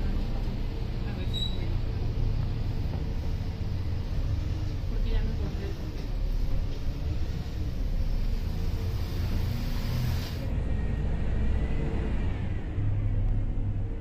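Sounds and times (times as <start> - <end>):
bus engine and road rumble: 0.0 - 14.0
hiss: 6.8 - 10.5.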